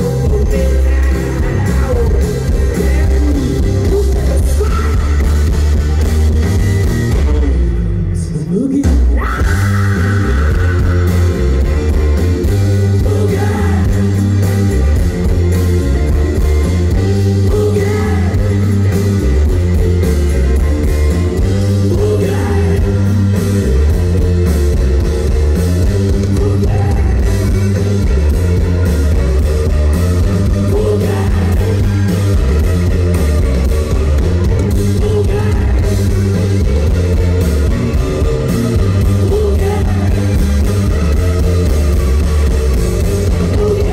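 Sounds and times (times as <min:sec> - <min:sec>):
person singing: 0:00.0 - 0:05.6, 0:08.2 - 0:14.5, 0:17.2 - 0:18.9, 0:20.6 - 0:23.2, 0:26.0 - 0:29.5, 0:30.5 - 0:32.1, 0:34.5 - 0:40.5, 0:43.2 - 0:43.9
bass guitar: 0:00.0 - 0:43.9
drums: 0:00.0 - 0:43.9
electric guitars: 0:00.0 - 0:43.9.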